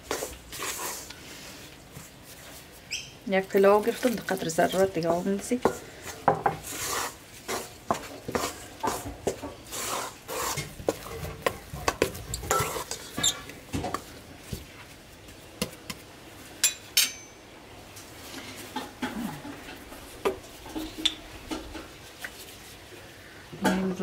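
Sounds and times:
batter stirring and scraping metal bowl: 0.0s - 1.6s, 3.4s - 14.1s.

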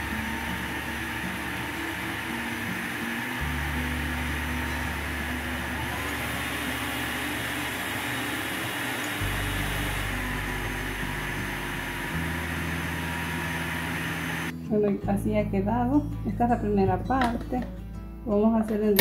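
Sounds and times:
food processor running: 0.0s - 14.5s
background music with low notes: 0.0s - 19.0s.

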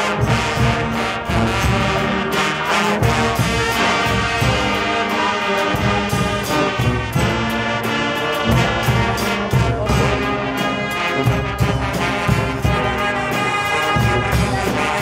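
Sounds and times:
brass chords: 0.0s - 15.0s
drums: 0.0s - 15.0s.

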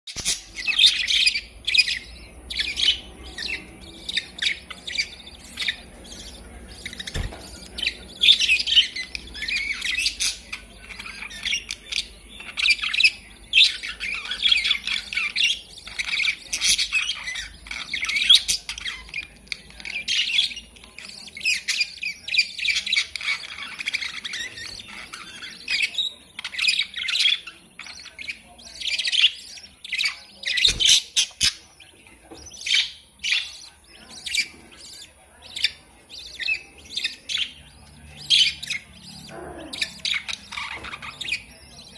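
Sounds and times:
budgerigars chirping and squawking: 0.1s - 41.9s.

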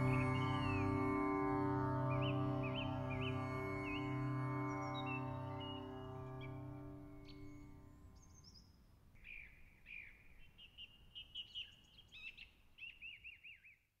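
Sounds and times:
tanpura drone: 0.0s - 8.4s.

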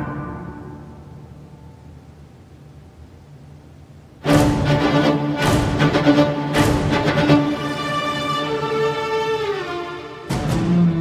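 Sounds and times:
low bowed string notes: 4.2s - 11.0s.

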